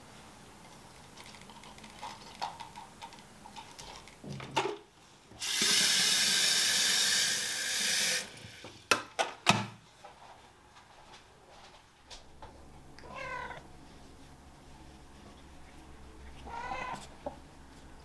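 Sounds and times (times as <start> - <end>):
tap water running into kettle: 5.4 - 9.0.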